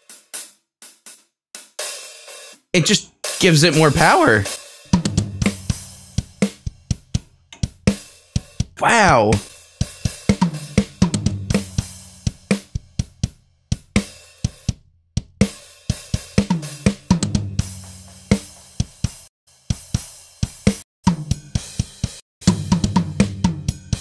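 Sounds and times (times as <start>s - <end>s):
acoustic drum kit playing: 2.8s - 5.8s, 8.8s - 9.4s.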